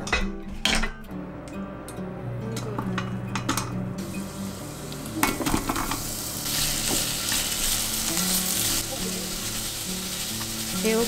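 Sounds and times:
vegetables sizzling in oil: 0:04.0 - 0:11.0.

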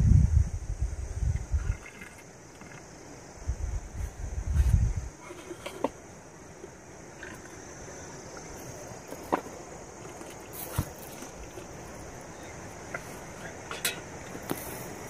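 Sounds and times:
steady hiss: 0:00.0 - 0:15.0
metal clinking on metal: 0:13.7 - 0:14.4.

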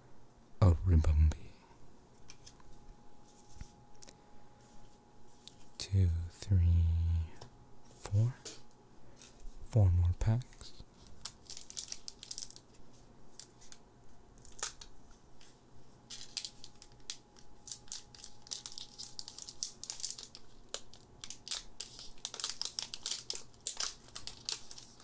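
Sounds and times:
foil wrapper crinkling: 0:10.9 - 0:13.8, 0:14.4 - 0:15.0, 0:16.1 - 0:25.0
foil wrapper tearing: 0:11.0 - 0:12.8, 0:14.4 - 0:14.9, 0:16.1 - 0:25.0.

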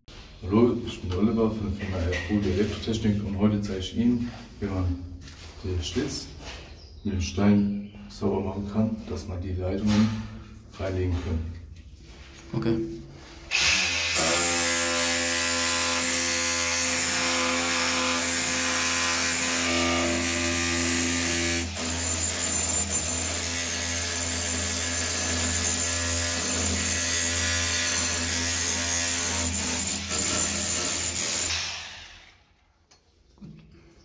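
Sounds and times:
rotary hammer chiselling masonry: 0:14.4 - 0:31.6.

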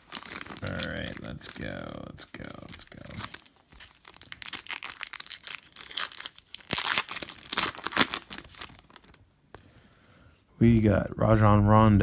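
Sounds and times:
foil wrapper tearing and crinkling: 0:00.0 - 0:09.2.

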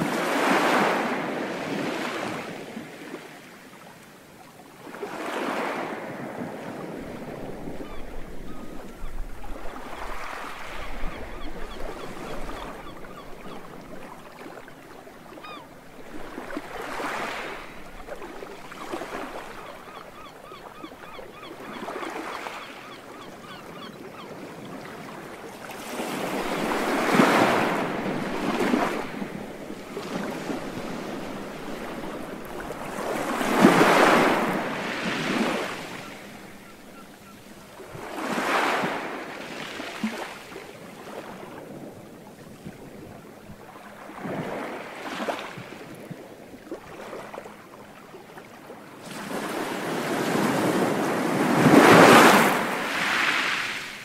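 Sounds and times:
sea waves breaking on a beach: 0:00.0 - 0:54.0
seagulls crying: 0:15.4 - 0:15.8, 0:18.7 - 0:24.8.

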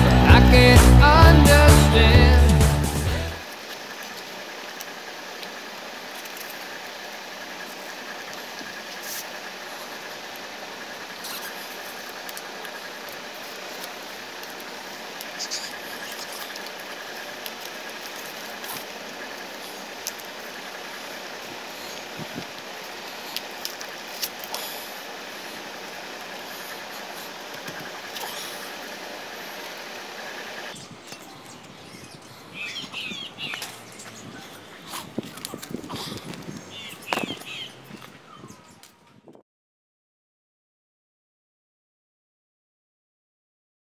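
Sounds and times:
steady hiss: 0:03.4 - 0:34.0.

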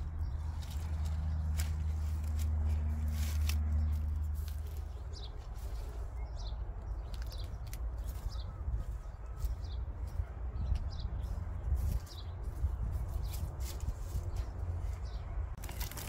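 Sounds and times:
bird chirping: 0:03.8 - 0:15.5.

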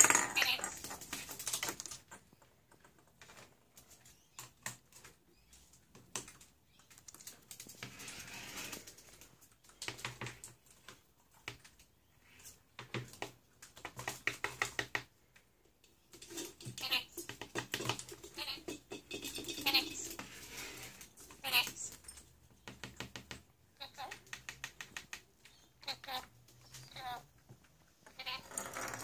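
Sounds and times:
bird clicks and taps on tabletop: 0:24.0 - 0:25.2.

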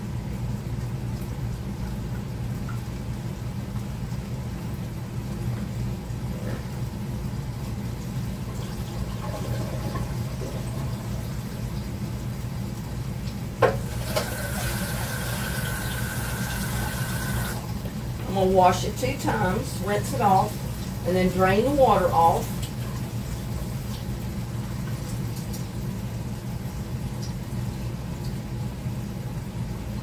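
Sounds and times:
faucet running water into pot: 0:08.4 - 0:12.5, 0:13.3 - 0:24.1.

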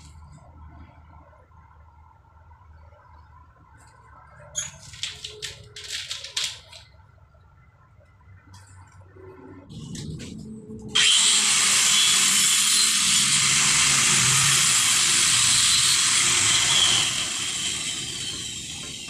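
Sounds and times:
angle grinder cutting tile: 0:11.0 - 0:19.0.

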